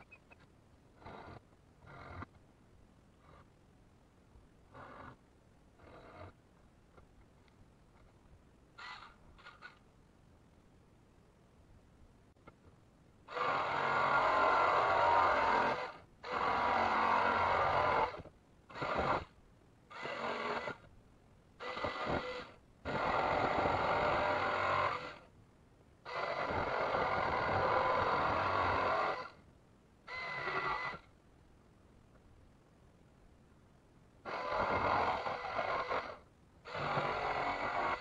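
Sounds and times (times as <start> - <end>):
jigsaw cutting steel: 13.3 - 19.3, 19.9 - 20.8, 26.1 - 29.4, 34.3 - 38.0.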